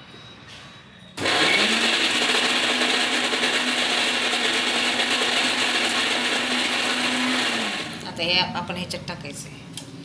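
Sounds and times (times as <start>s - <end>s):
mixer grinder motor grinding: 1.2s - 8.1s.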